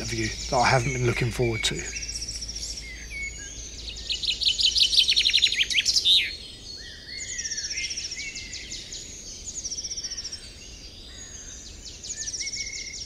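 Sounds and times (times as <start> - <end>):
fast bird trill: 0.0 - 6.3
songbirds singing: 0.0 - 13.0.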